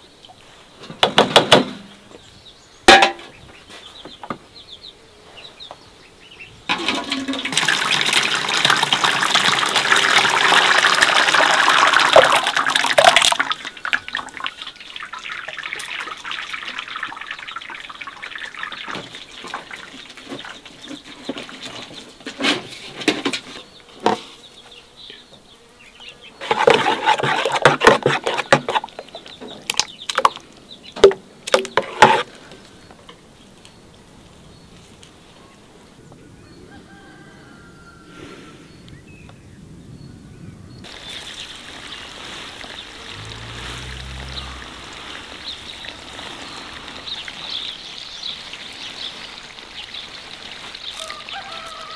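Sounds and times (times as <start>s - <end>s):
water pouring into a metal pot: 6.7s - 20.6s
water sloshing and splashing: 6.7s - 22.0s, 26.4s - 30.4s, 40.9s - 51.9s.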